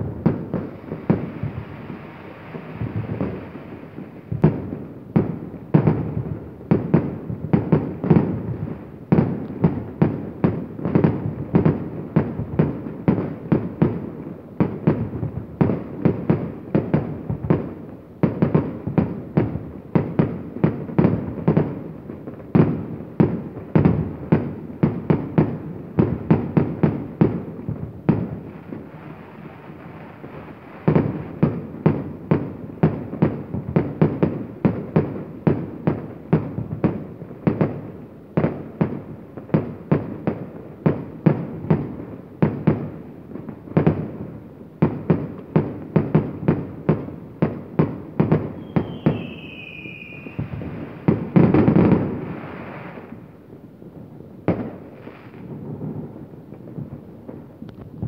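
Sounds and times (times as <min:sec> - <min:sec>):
fireworks banging: 0:00.0 - 0:53.4.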